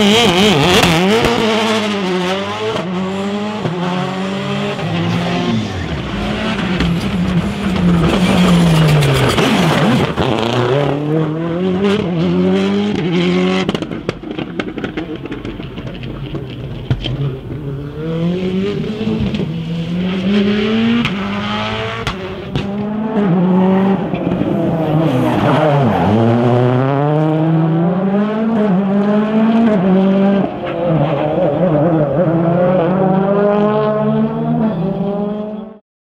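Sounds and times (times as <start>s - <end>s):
rally car engines at full throttle: 0.0s - 35.8s.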